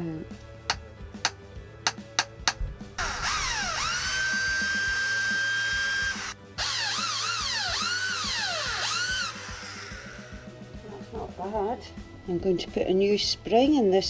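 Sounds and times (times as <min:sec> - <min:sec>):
electric drill motor whine: 0:03.0 - 0:10.5.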